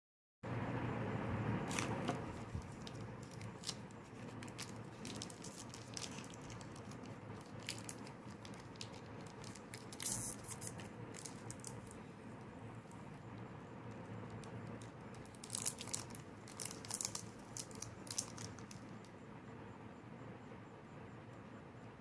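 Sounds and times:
plastic wrapper crinkling: 1.7 - 12.0, 14.4 - 19.0.

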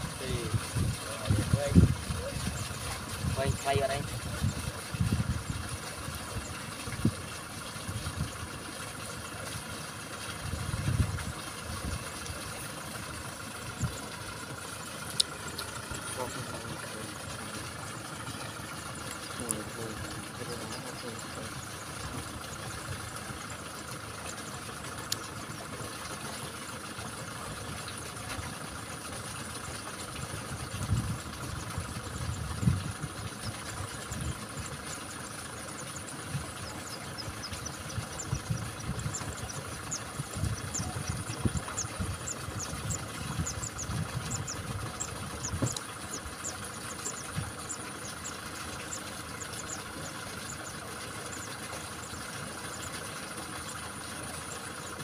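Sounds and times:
low thumps and rumbles: 0.0 - 7.2, 10.5 - 12.7, 30.6 - 34.7, 36.3 - 46.6
tractor diesel engine idling: 0.0 - 55.0.

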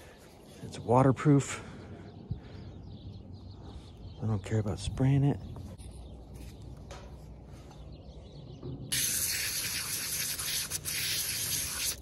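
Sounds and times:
spray nozzle hissing water: 8.9 - 12.0.

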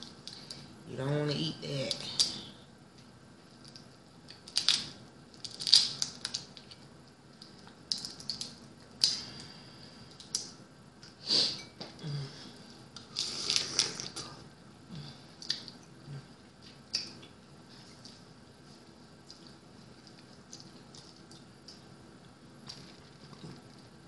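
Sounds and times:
crab shells cracking: 3.6 - 9.5.

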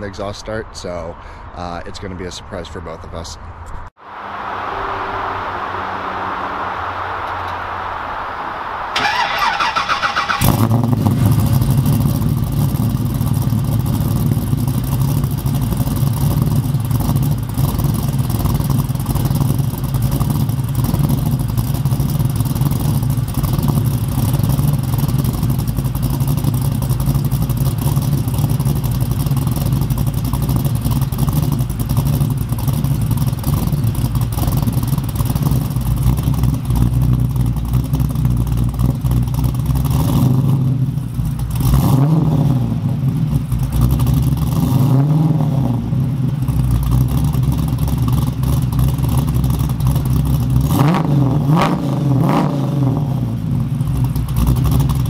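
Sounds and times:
engine idling deeply: 5.2 - 50.8, 53.3 - 55.0.

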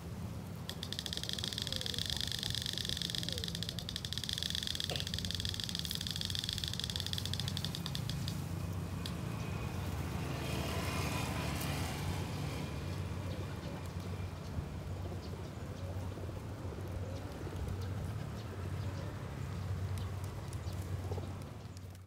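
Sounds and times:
steady high buzz: 0.0 - 10.8
pigeons feeding: 0.0 - 22.0
wings flapping: 0.6 - 9.3.

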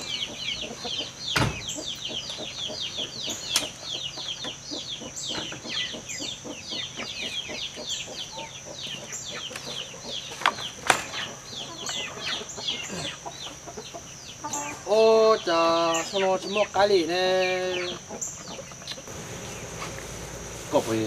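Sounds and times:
chickens clucking: 0.0 - 21.0
steady high hum: 0.0 - 21.0.

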